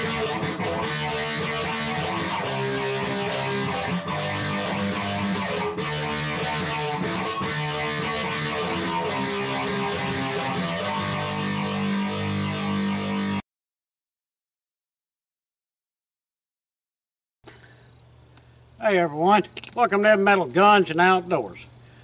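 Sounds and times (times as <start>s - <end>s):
guitar-led intro music: 0.0s - 13.4s.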